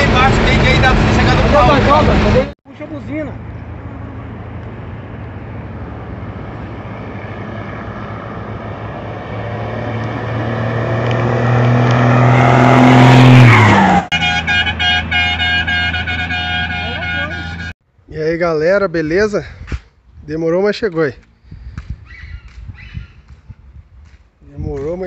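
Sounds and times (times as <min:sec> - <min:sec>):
diesel truck engine passing: 0:03.2 - 0:17.7
vehicle horn blasts: 0:14.1 - 0:17.8.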